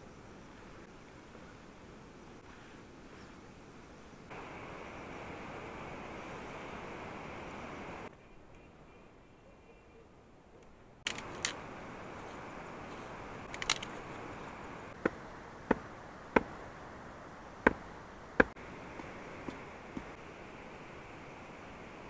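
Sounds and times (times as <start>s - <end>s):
stone knocking wooden stake: 15.0s - 16.6s.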